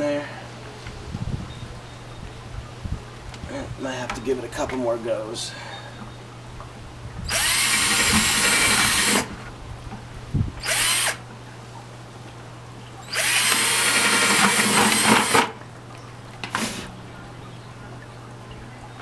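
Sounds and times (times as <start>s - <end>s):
drill boring through plastic: 7.3s - 9.3s, 10.6s - 11.2s, 13.1s - 15.6s.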